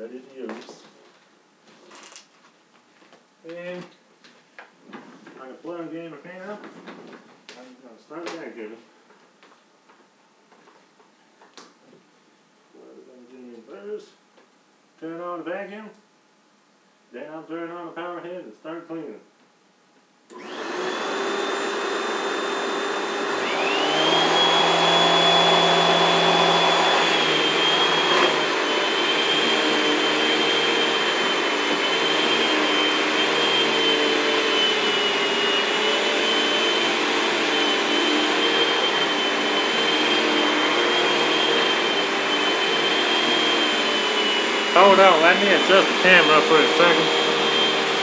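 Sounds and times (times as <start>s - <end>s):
power head motor spinning up: 20.3s - 48.0s
shop vacuum whining: 20.3s - 48.0s
vacuum running over carpet: 20.3s - 48.0s.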